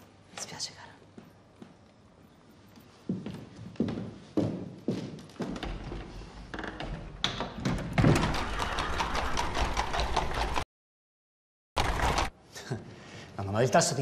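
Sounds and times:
carriage wheels rumbling: 0:06.6 - 0:10.6, 0:11.8 - 0:12.3.

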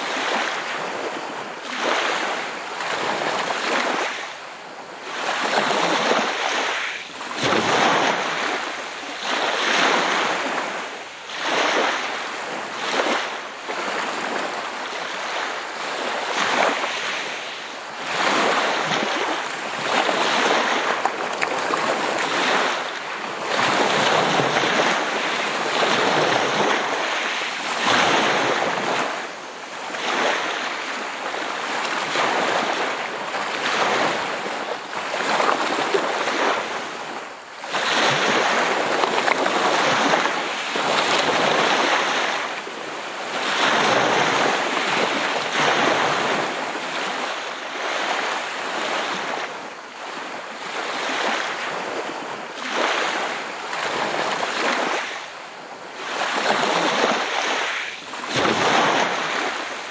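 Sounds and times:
sea waves breaking: 0:00.0 - 0:59.9.

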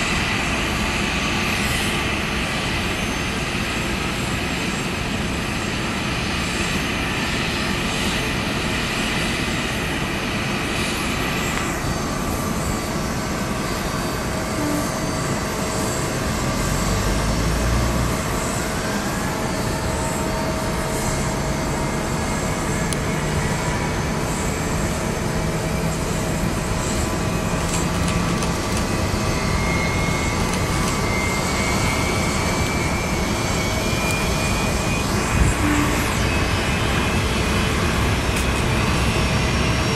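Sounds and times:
jet engine noise: 0:00.0 - 0:39.9
engine whine rising in pitch: 0:14.3 - 0:39.9.

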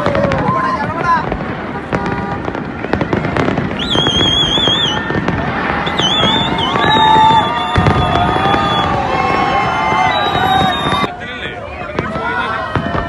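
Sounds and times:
fireworks bursting and crackling: 0:00.0 - 0:13.0
high warbling whistle: 0:03.7 - 0:05.1, 0:05.8 - 0:09.0.

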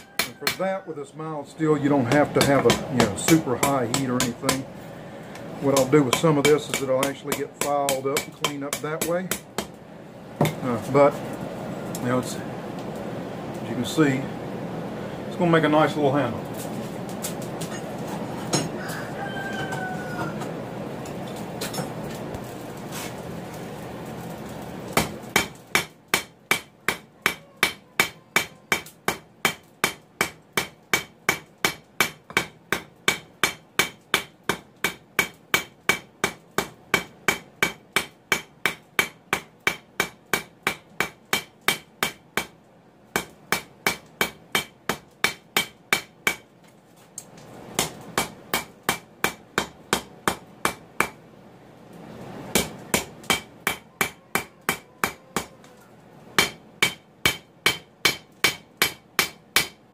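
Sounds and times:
hammer ringing on hot steel: 0:00.2 - 0:00.6, 0:25.0 - 0:42.5, 0:52.5 - 0:55.5, 0:56.4 - 0:59.8.

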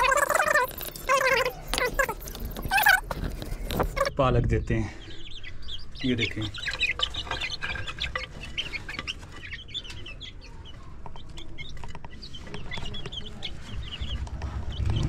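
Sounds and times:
hens clucking: 0:00.0 - 0:15.0.

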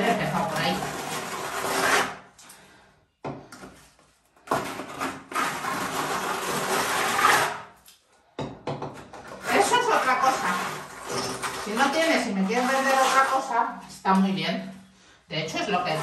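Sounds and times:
trowel scraping render on wall: 0:00.0 - 0:02.2, 0:04.5 - 0:07.7, 0:09.2 - 0:13.8.

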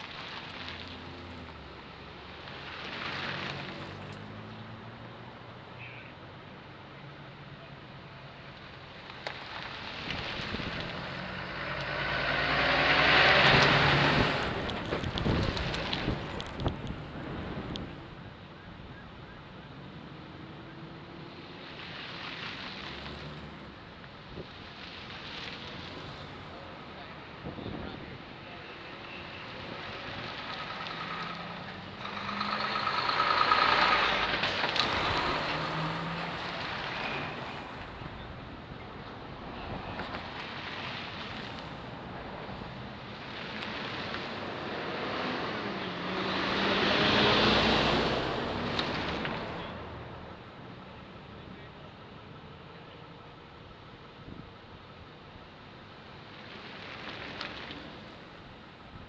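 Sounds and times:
vehicle passing by: 0:00.0 - 0:05.5, 0:09.6 - 0:18.2, 0:20.0 - 0:51.8.

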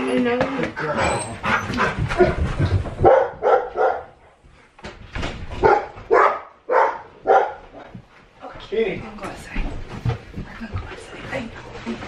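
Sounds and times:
dog barking: 0:03.0 - 0:04.2, 0:05.6 - 0:07.9.

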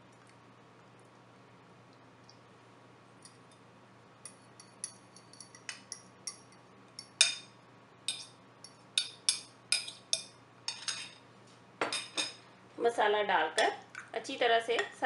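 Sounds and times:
spoon clinking against glass bowl: 0:04.2 - 0:07.5, 0:08.1 - 0:11.2.

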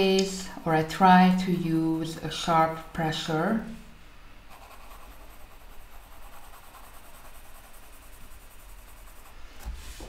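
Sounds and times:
pencil scratching on paper: 0:04.5 - 0:09.5.

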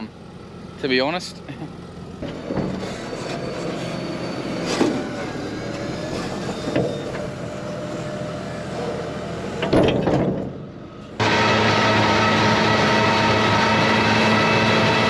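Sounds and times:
metallic clunks: 0:09.6 - 0:10.6.

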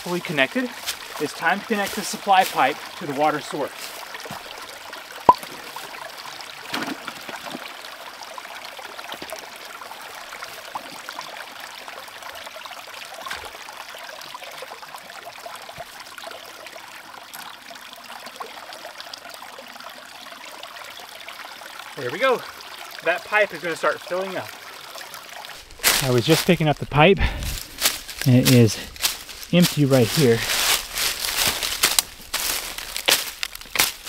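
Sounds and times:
creek water trickling: 0:00.0 - 0:34.0
water pouring from bucket outlet: 0:00.2 - 0:26.7.

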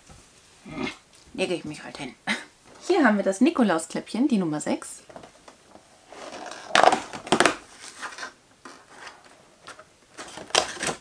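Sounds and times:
cardboard tearing: 0:06.1 - 0:11.0
cardboard rustling and clicking: 0:06.2 - 0:11.0.

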